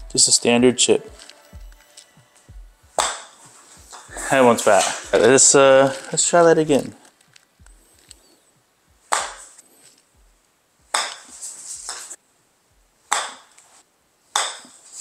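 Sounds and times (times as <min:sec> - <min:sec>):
golf club striking ball: 0:03.0 - 0:04.1, 0:09.0 - 0:09.6, 0:10.9 - 0:11.3, 0:13.1 - 0:13.6, 0:14.3 - 0:14.8.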